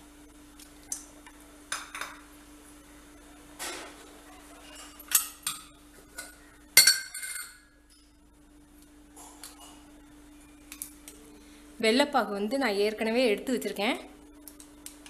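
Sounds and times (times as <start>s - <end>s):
metal utensils clinking: 6.2s - 7.7s.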